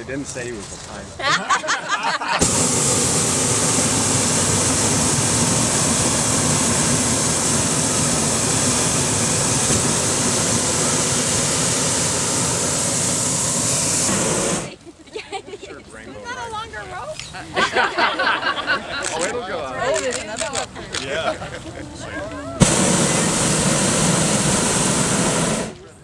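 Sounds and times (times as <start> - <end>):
propane burner blast: 2.3 - 14.8, 22.5 - 26.0.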